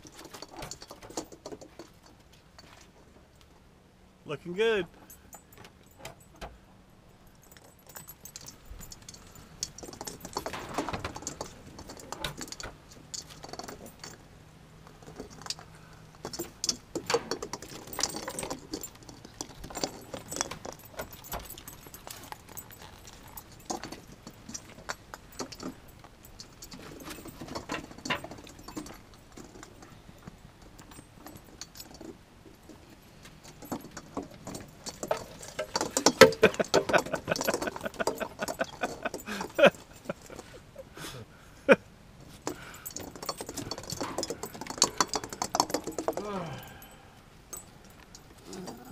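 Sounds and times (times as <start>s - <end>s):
dog claws clicking on wooden boards: 33.3s - 40.4s, 42.4s - 46.7s
plastic ornaments rattling: 33.5s - 40.5s, 42.4s - 46.6s.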